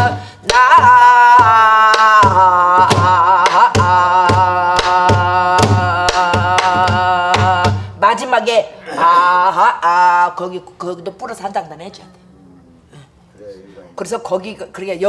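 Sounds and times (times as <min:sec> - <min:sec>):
woman singing vocalise: 0:00.0 - 0:07.9, 0:08.8 - 0:10.5.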